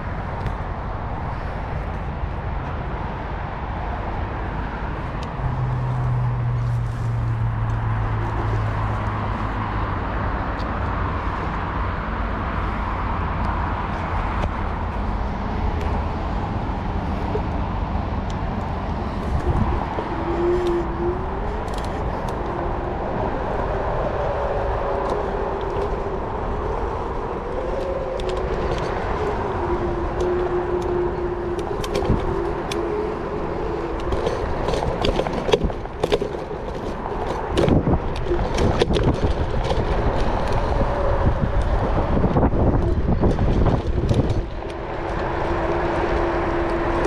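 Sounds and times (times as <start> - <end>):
wind on microphone: 0.0 - 47.0
frame rattling over bumps: 25.2 - 45.4.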